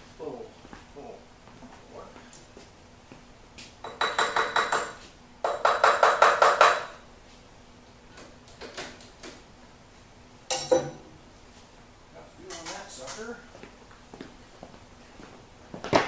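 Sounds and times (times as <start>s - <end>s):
sharp metallic clank: 10.5s - 11.1s.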